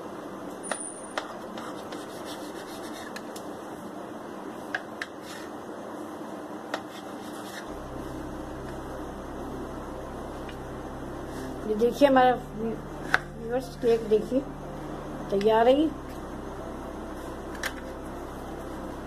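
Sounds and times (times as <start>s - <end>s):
low hum: 7.6s - 19.0s.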